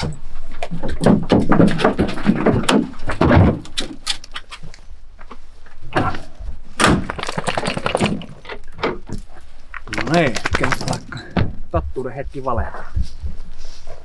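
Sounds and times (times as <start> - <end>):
dogs scuffling: 9.3 - 11.2.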